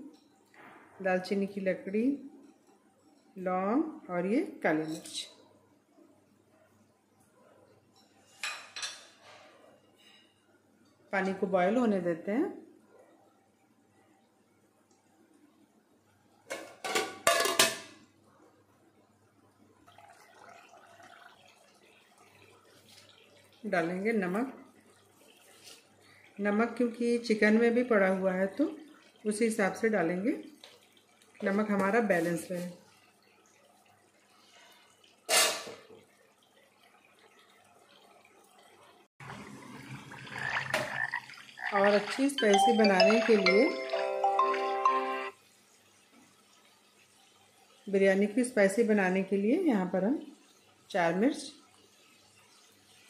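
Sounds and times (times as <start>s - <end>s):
faint room noise: 0.0s - 43.0s
water splashing in a pot: 19.8s - 53.0s.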